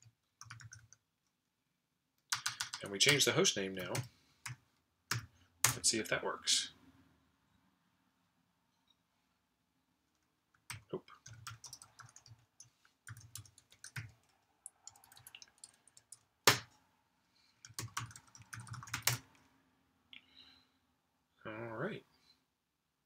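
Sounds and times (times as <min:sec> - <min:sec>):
typing on computer keyboard: 0:00.0 - 0:01.0, 0:02.2 - 0:03.2, 0:03.8 - 0:05.8, 0:10.1 - 0:16.7, 0:17.6 - 0:19.4.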